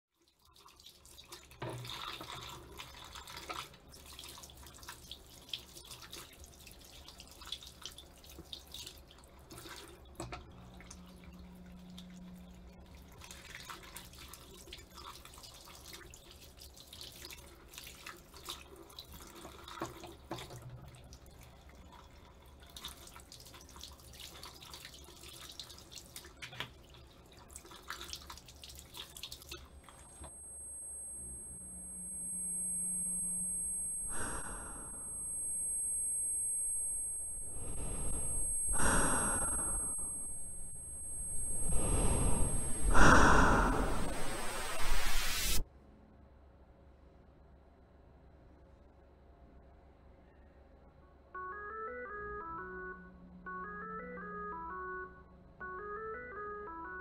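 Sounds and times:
tap water running into sink: 0.5 - 10.6, 17.9 - 21.3
low steady hum: 9.1 - 13.5, 28.8 - 57.0.

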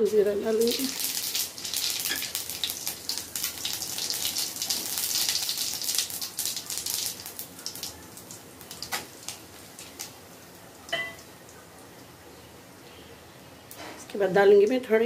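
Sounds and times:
seeds sizzling in hot oil: 0.0 - 11.3.

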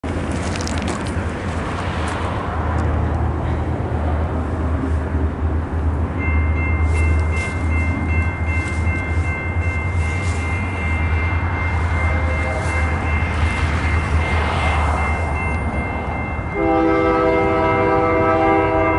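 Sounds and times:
train rumble: 0.0 - 18.9
crossing warning bell ringing: 5.6 - 18.9.

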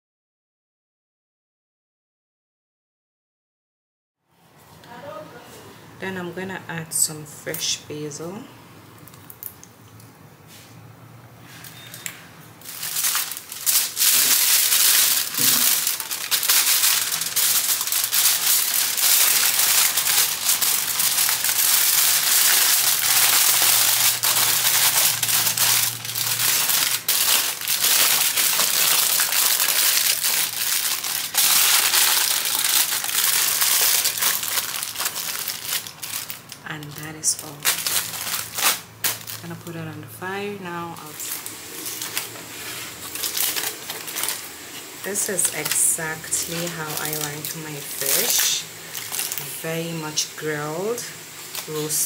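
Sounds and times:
aluminium foil crinkling: 11.5 - 52.0.

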